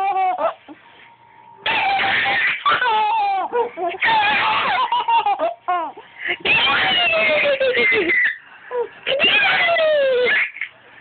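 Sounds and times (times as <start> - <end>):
baby laughing in high-pitched squeals: 1.7 - 8.4, 9.1 - 10.8.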